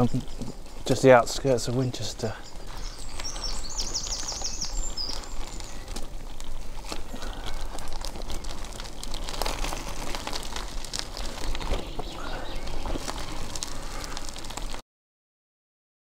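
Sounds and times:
bicycle clicks and rattles: 0.0s - 14.8s
bicycle tyres on gravel: 0.0s - 14.8s
bird trilling: 2.4s - 5.8s.

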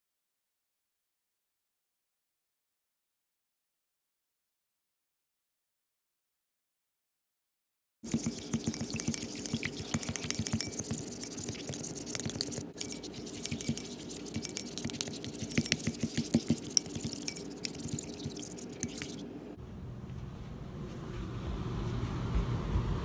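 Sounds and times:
brush scraping a ceramic bowl: 8.0s - 19.3s.

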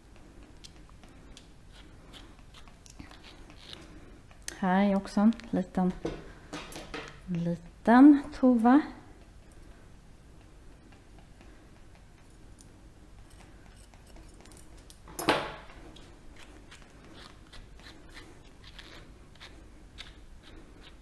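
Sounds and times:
scissors snipping fur: 0.6s - 5.5s, 10.9s - 15.0s.

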